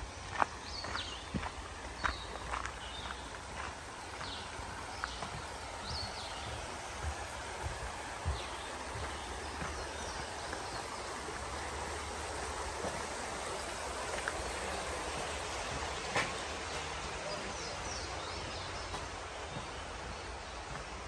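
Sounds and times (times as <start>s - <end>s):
creek running over rocks: 0.0s - 21.0s
footsteps on trail: 0.0s - 21.0s.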